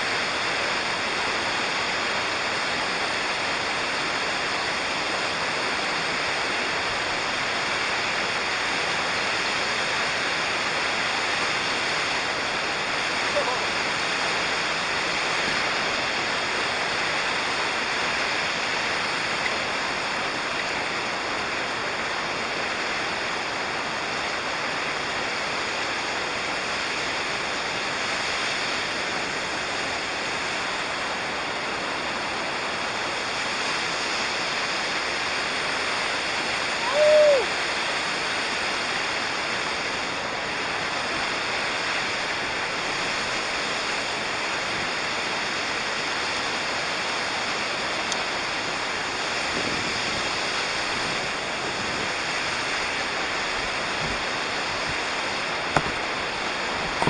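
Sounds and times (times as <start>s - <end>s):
waterfall rushing: 0.0s - 57.0s
whistle-like falling call: 36.8s - 37.5s.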